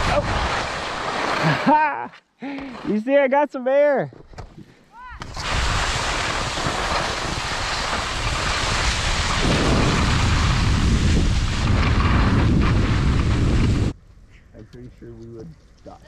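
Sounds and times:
skis hissing over snow: 0.0s - 2.0s, 5.3s - 13.9s
wind rumble on microphone: 5.3s - 14.0s.

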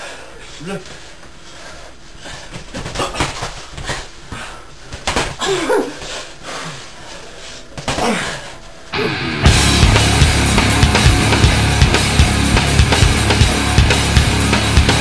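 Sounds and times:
boxing gloves thudding: 4.9s - 5.5s.

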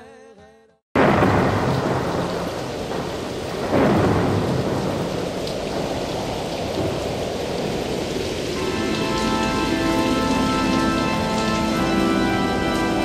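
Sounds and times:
thunder crash: 1.0s - 9.3s
heavy rain: 1.0s - 13.0s
thunder rumble: 1.0s - 13.0s.

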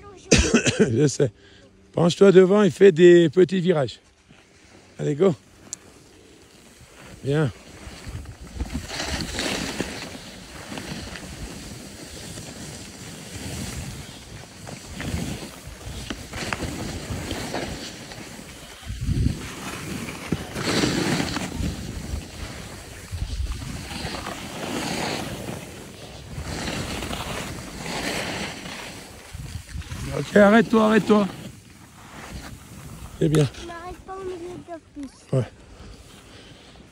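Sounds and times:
skis scraping over snow: 2.0s - 36.9s
wind on microphone: 18.8s - 19.6s, 21.5s - 24.2s.

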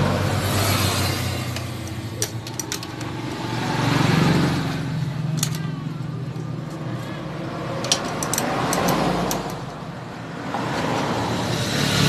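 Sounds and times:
engine revving: 0.0s - 2.2s, 3.0s - 5.3s, 10.5s - 12.0s
metallic clicks of hand tools: 1.5s - 3.2s, 5.3s - 5.7s, 7.8s - 9.8s.

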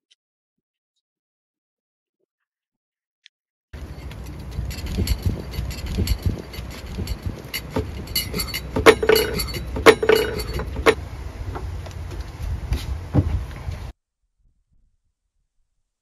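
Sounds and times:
sharp clinks: 3.8s - 11.0s
wind rumbling on microphone: 10.5s - 14.0s.

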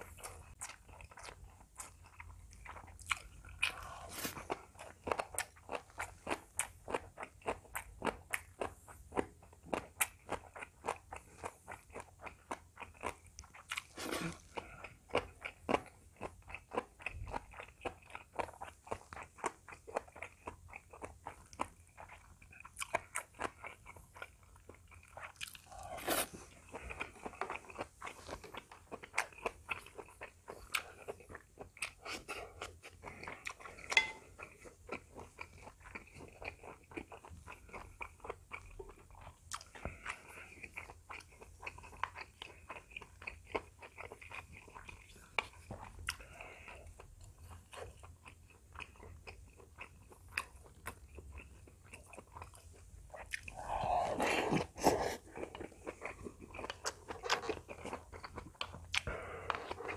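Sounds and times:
person chewing crunchy food: 0.0s - 59.9s.

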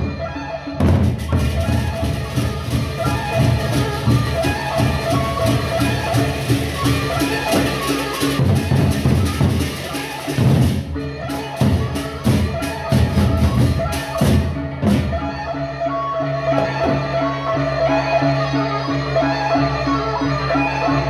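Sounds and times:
large drums beaten fast: 0.8s - 15.2s.

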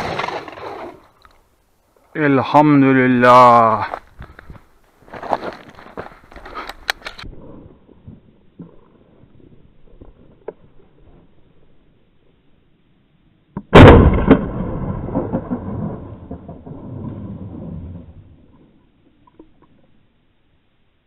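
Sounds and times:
shotgun shot: 13.7s - 16.4s.

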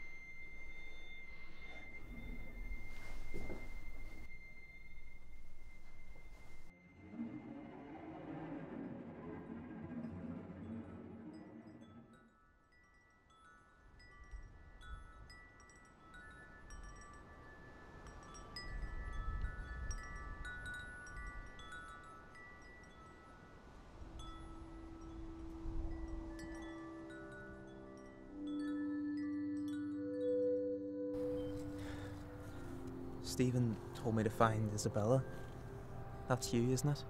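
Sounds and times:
held low tones: 0.0s - 6.7s
wind chimes tinkling: 0.0s - 6.8s, 10.6s - 37.0s.

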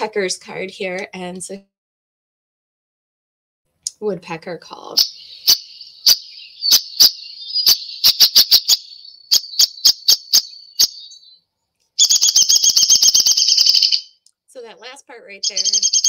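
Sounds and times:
recorded woodpecker calls: 4.8s - 14.2s, 15.4s - 16.0s.

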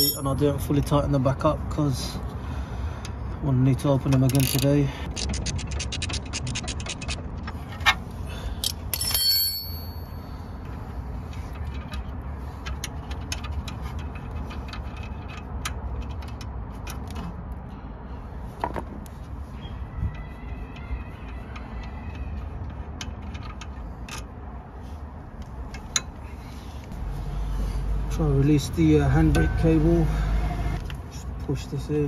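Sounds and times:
metal clinks of spanners and bolts: 0.0s - 0.4s, 8.6s - 10.4s
ratcheting spanner clicking: 4.0s - 7.6s.

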